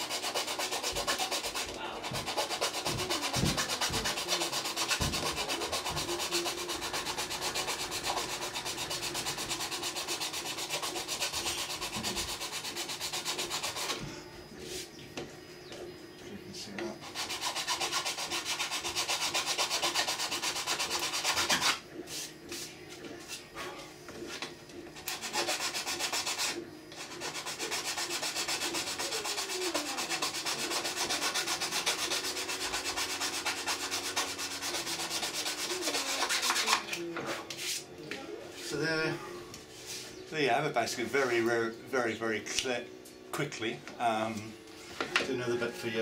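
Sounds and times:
needle file rasping on plastic: 0.0s - 14.0s, 25.0s - 36.9s.

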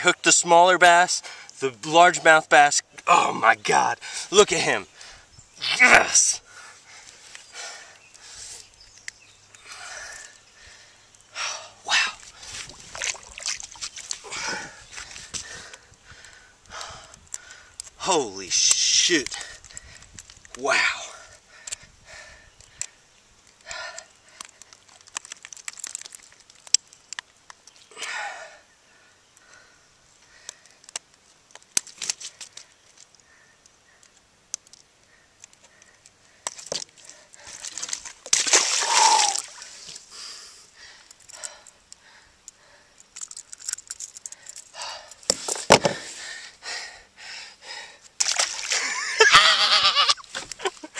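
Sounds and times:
wordless vocal outbursts: 3.0s - 4.8s, 5.6s - 6.4s
water splashing: 12.6s - 14.6s, 37.6s - 39.9s, 48.2s - 49.2s.

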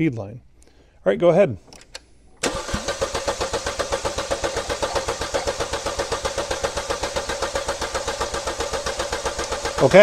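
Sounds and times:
engine cranking on starter: 2.4s - 10.0s.

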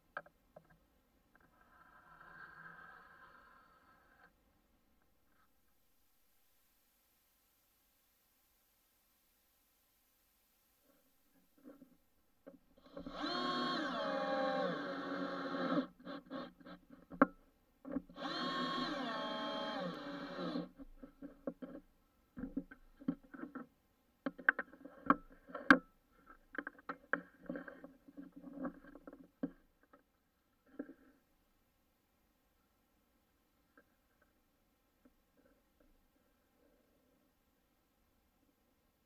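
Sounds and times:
drill driving screws into wood: 12.8s - 16.8s, 18.0s - 20.8s.

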